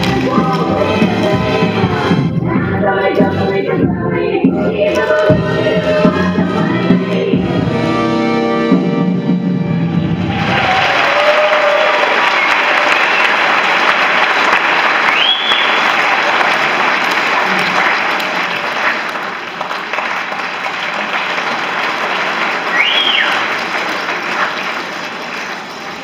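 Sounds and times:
audience applauding: 0:10.2 - 0:26.0
high whistles: 0:15.0 - 0:15.9, 0:22.7 - 0:23.5.

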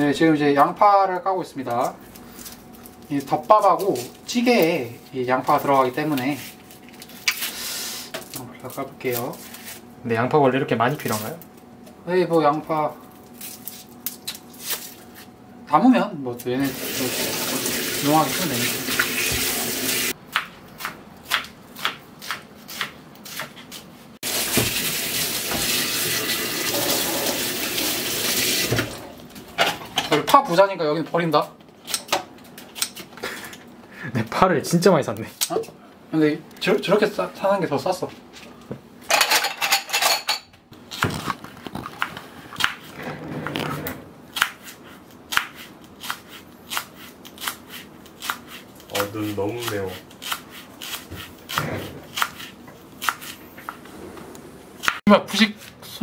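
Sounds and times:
knife slicing on cutting board: 0:49.6 - 0:53.4.

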